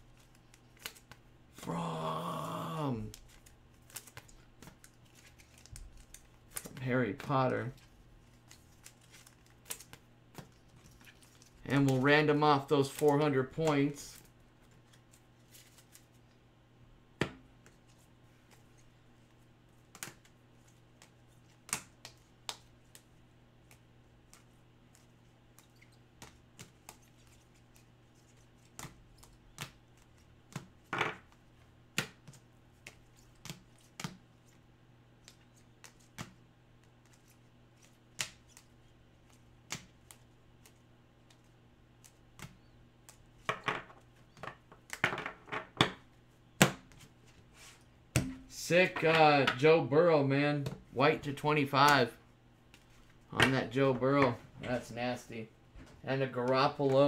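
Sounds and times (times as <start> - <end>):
cards clicking and tapping on desk: 3.1 - 6.8, 19.8 - 34.2, 35.2 - 47.1.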